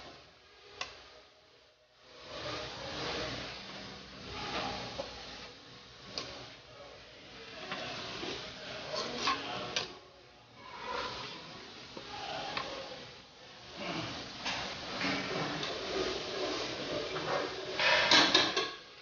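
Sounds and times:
spatula scraping noodles in wok: 7.6 - 9.8.

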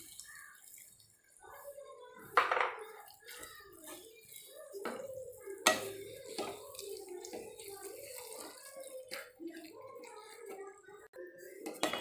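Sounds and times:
spatula scraping pan: 0.0 - 12.0
spatula stirring wet food: 0.0 - 12.0.

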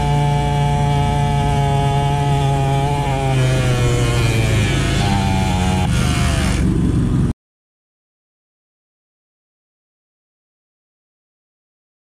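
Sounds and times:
dirt bike engine buzzing: 0.0 - 7.3.

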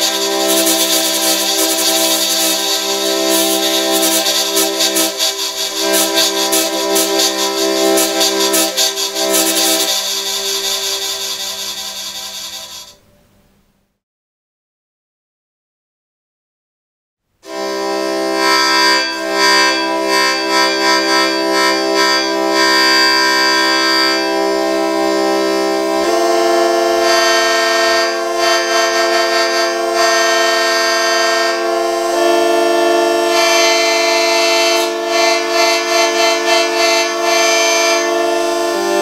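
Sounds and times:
hurdy-gurdy playing a tune: 0.0 - 13.0, 17.5 - 39.0
sustained drone notes: 0.0 - 13.1.

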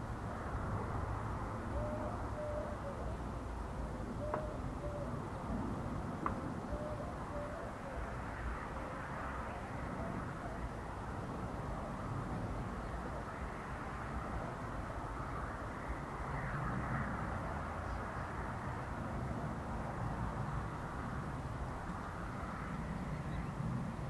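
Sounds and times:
bird cooing: 1.7 - 3.3, 4.2 - 5.2, 6.6 - 8.2, 8.8 - 10.7.

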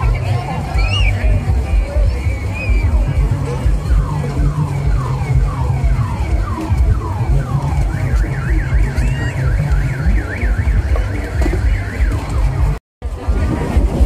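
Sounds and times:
loud music with heavy bass: 0.0 - 14.0
electronic alarm warbling: 2.3 - 12.8.

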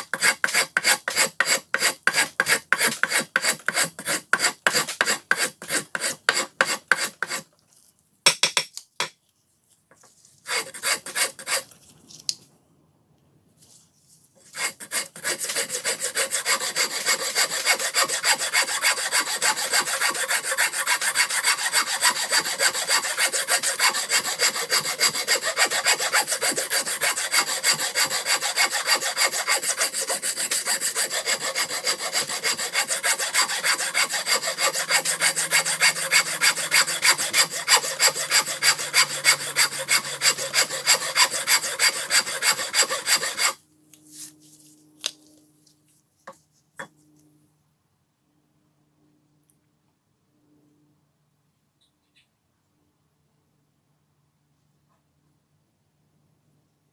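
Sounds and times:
wood rasp scraping wood: 0.0 - 7.5, 10.4 - 11.7, 14.4 - 43.6.

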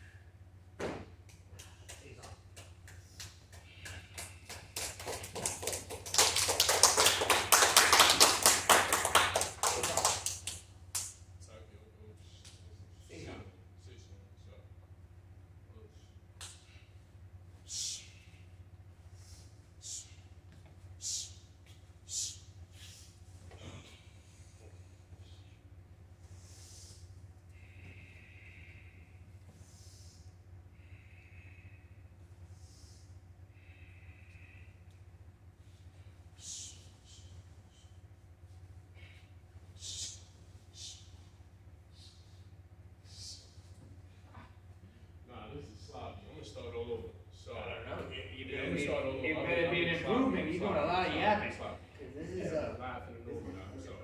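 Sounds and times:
steady low hum: 0.0 - 54.0
people clapping: 1.3 - 11.2
person breathing slowly: 22.1 - 38.0.

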